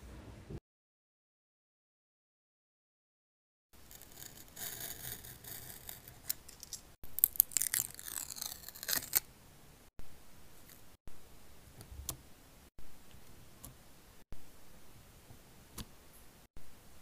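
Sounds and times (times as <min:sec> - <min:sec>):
plastic film crinkling and tearing: 0:07.2 - 0:09.2.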